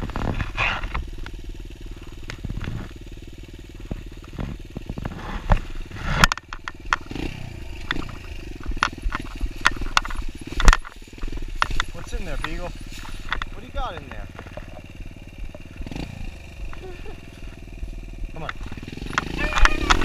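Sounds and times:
dirt bike engine idling: 0.0s - 20.0s
sharp knocks and clicks: 6.2s - 12.6s, 13.2s - 16.1s.

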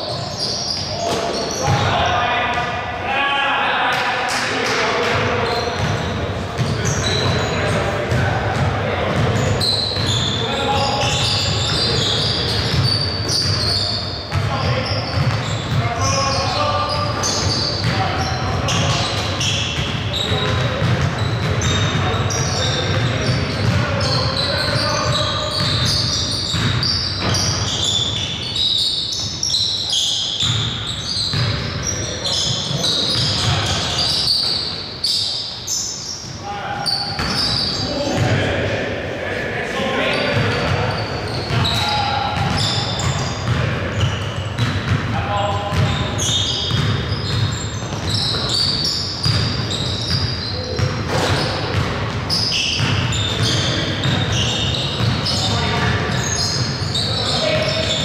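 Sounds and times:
high-pitched shoe squeaks: 0.0s - 1.8s, 5.4s - 7.6s, 9.4s - 20.6s, 21.2s - 38.0s, 45.7s - 51.7s, 52.3s - 58.0s
basketball bouncing on court: 5.0s - 28.3s, 30.4s - 34.6s, 37.1s - 38.4s, 40.3s - 58.0s.

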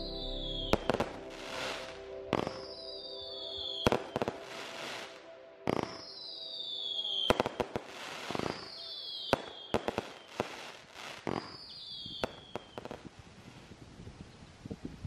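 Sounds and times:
firework whistles: 5.7s - 13.0s
firework bangs and crackles: 7.3s - 13.5s.

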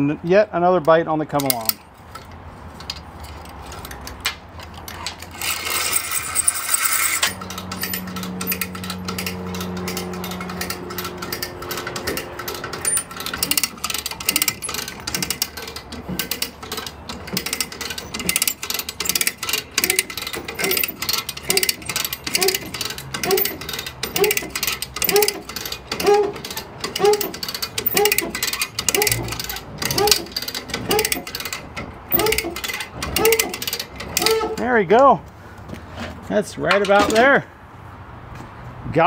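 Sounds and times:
ratchet pawl clicking: 5.2s - 34.6s.

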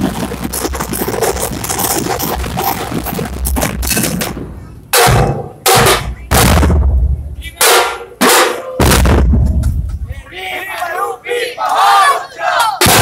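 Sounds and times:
street drums playing fast rhythm: 0.0s - 10.1s
heavy unison drum hits: 3.6s - 9.9s.

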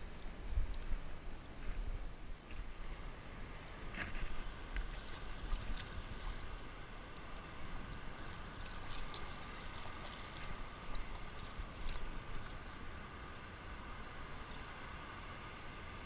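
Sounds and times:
wind rumble on microphone: 0.0s - 6.8s
shallow water sloshing and lapping: 0.0s - 15.6s
small splashes: 4.0s - 13.0s.

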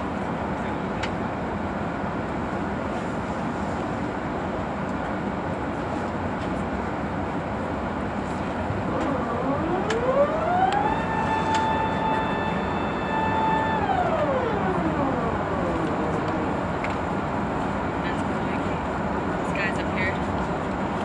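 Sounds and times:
airliner cabin engine noise: 0.0s - 21.0s
hydraulic mechanical whine: 8.7s - 17.5s.

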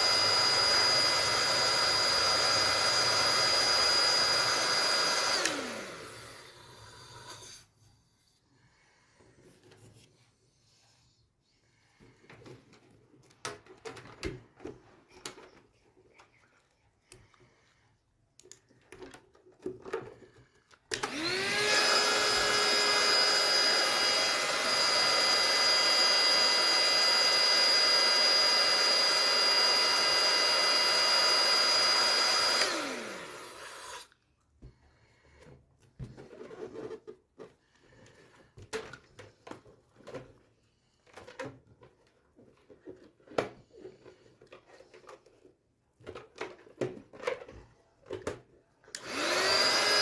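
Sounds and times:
electric balloon pump whining: 0.0s - 7.7s, 18.7s - 34.8s, 48.9s - 50.0s.

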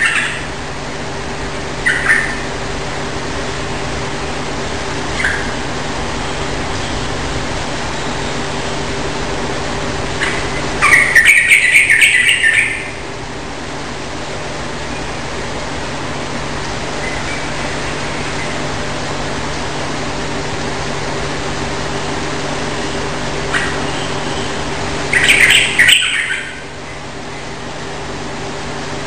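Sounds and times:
bird singing rapid notes: 1.8s - 2.5s, 10.2s - 13.0s, 23.5s - 27.5s.

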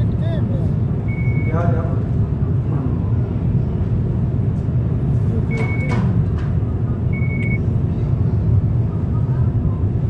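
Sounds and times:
car road and engine drone: 0.0s - 10.0s.

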